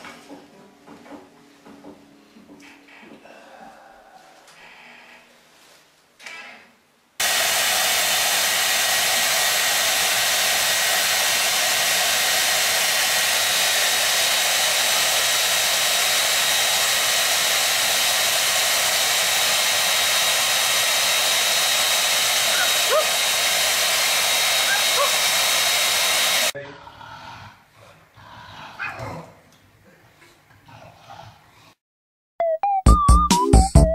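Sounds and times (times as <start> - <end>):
hair dryer running: 7.2 - 26.6.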